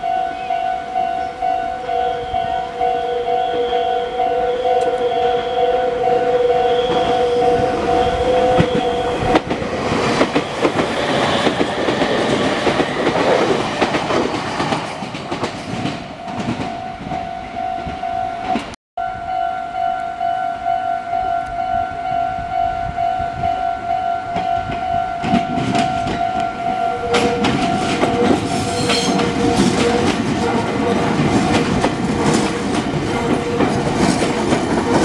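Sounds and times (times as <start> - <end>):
level-crossing alarm ringing: 0.0 - 12.8, 16.2 - 35.0
train wheels clattering over rails: 6.8 - 17.2, 24.4 - 35.0.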